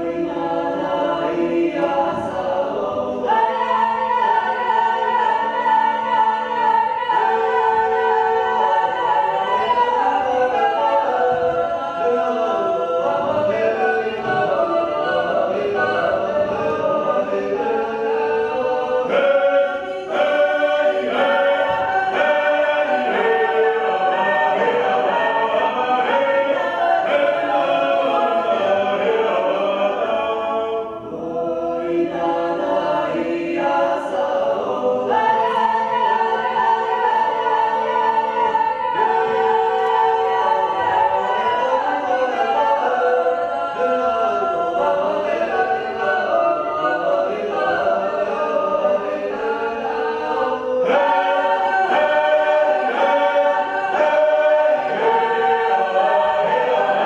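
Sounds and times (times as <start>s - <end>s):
unaccompanied choir singing: 0.0s - 57.0s.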